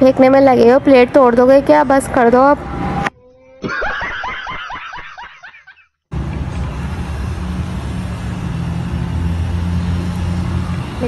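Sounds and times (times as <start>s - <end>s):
man laughing loudly: 3.6s - 5.9s.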